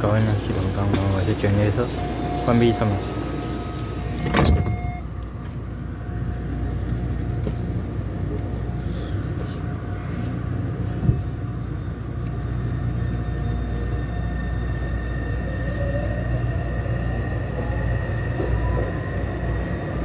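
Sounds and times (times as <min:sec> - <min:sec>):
low rumble of train moving: 0:00.0 - 0:20.0
train door thump: 0:04.1 - 0:05.0.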